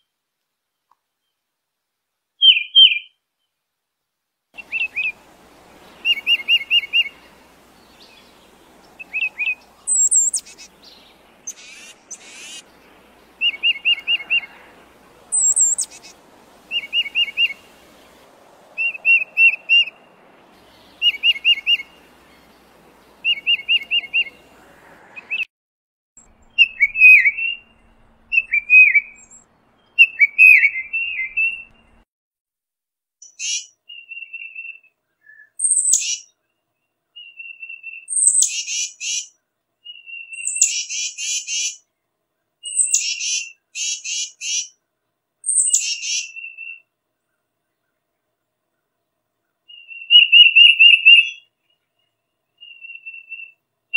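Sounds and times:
bird whistling short phrases: 2.4 - 3.2, 9.0 - 12.6, 15.3 - 16.1, 26.6 - 27.7, 28.3 - 29.4, 49.7 - 51.4, 52.6 - 53.6.

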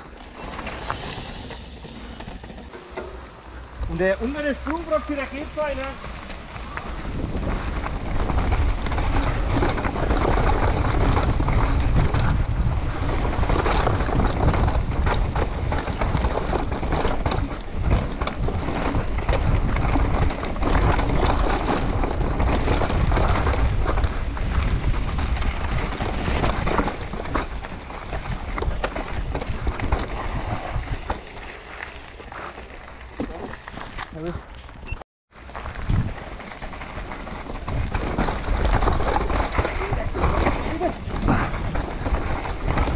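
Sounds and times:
bike rattling over stones: 0.0 - 42.9
wind on microphone: 6.4 - 31.4, 35.7 - 36.4
tyre rumble: 6.7 - 42.9.

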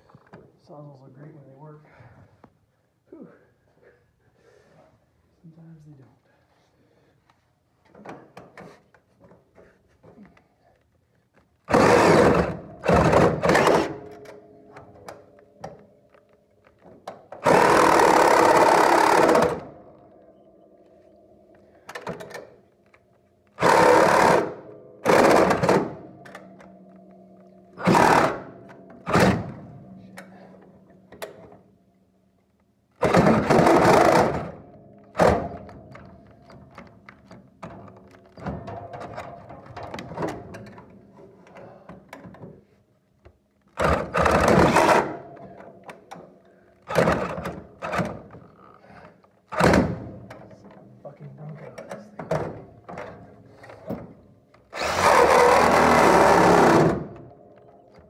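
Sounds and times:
power tool running in bursts: 11.7 - 14.0, 17.4 - 19.7, 23.6 - 26.0, 27.8 - 29.5, 33.0 - 34.6, 54.8 - 57.2.

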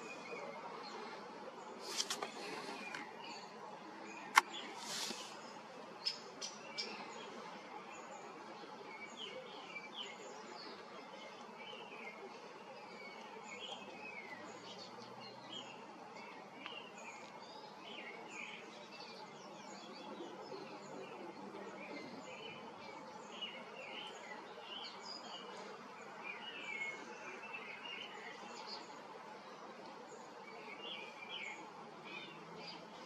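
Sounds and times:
small birds chirping: 0.0 - 33.0
steady low hiss: 0.0 - 33.0.

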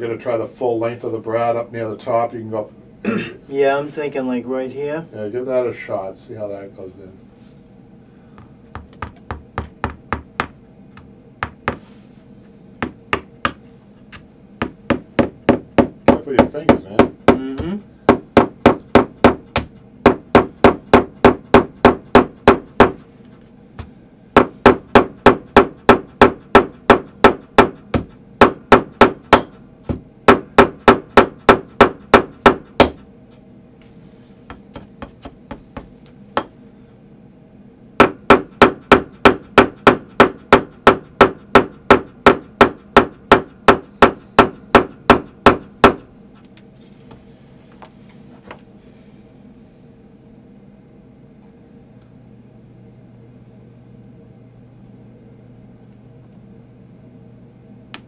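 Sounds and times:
tack hammer tapping: 8.4 - 11.8, 12.8 - 23.0, 34.5 - 36.5.

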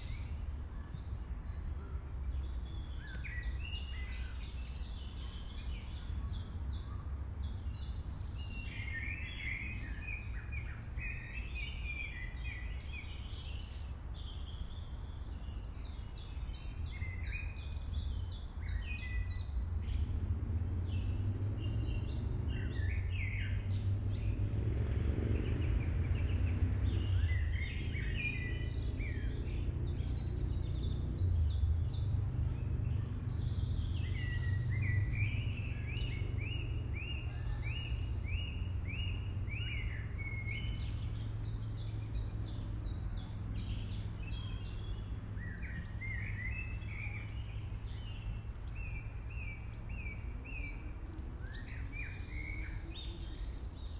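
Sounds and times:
birds singing and calling: 0.0 - 53.9
steady low rumble: 17.5 - 53.9.

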